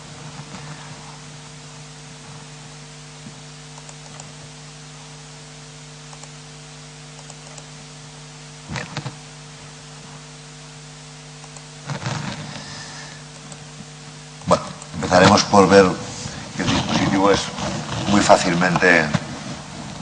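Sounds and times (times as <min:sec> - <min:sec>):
electrical hum and hiss: 0:00.0 - 0:20.0
faint ticks: 0:06.1 - 0:06.4.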